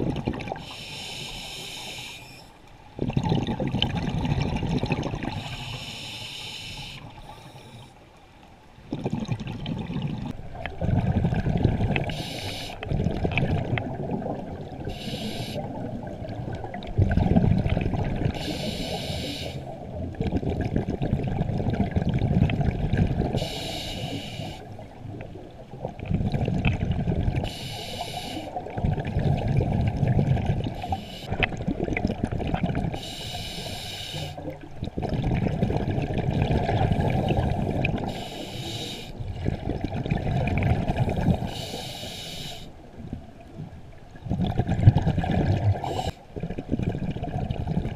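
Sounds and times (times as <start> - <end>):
exhaled bubbles rushing: 0.0 - 0.6, 3.0 - 5.4, 8.9 - 14.9, 15.6 - 18.4, 19.7 - 23.4, 24.8 - 27.5, 28.5 - 33.0, 34.5 - 38.1, 39.2 - 41.5, 44.2 - 47.9
regulator hiss: 0.6 - 2.5, 5.4 - 7.8, 12.1 - 12.8, 14.9 - 15.7, 18.4 - 19.7, 23.4 - 24.7, 27.5 - 28.6, 30.8 - 31.3, 33.0 - 34.4, 38.1 - 39.2, 41.5 - 42.7.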